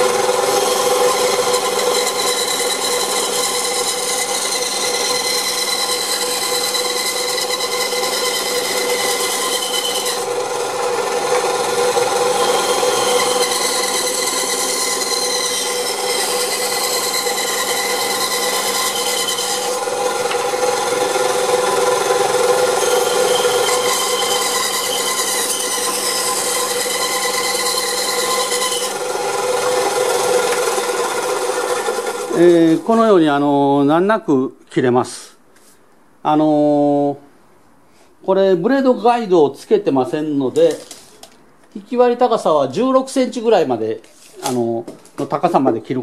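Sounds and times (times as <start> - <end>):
saw motor hum: 0.0 - 32.8
band saw ripping through wood: 11.4 - 21.0, 21.6 - 32.9.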